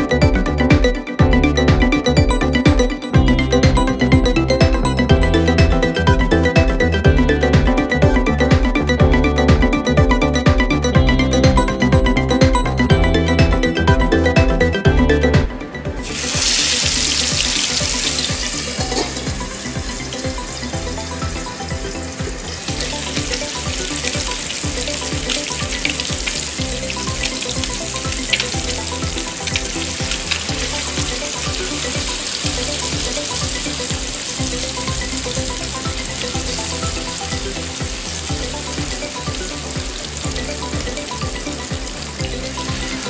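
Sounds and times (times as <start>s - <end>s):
fish frying in hot oil: 16.0s - 43.0s.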